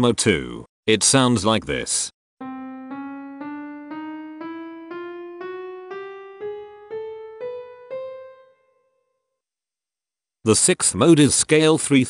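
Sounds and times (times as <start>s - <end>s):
piano playing ascending scale: 2.4s - 9.1s.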